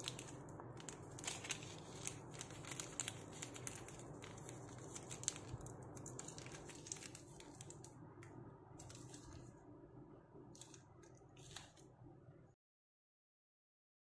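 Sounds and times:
paper crinkling: 0:00.0 - 0:08.0, 0:08.8 - 0:09.6, 0:10.6 - 0:11.9.

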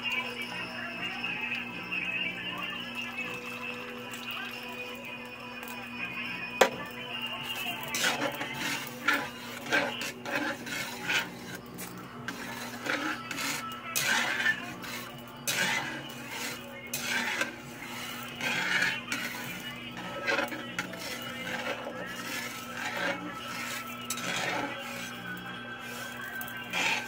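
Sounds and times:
metal spatula scraping a wok: 0:06.6 - 0:27.0.

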